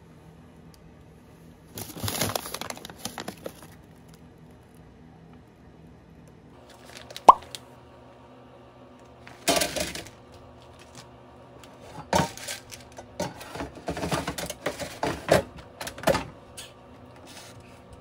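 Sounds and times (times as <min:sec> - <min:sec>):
frozen food tipped from plastic bag: 0:01.7 - 0:03.8.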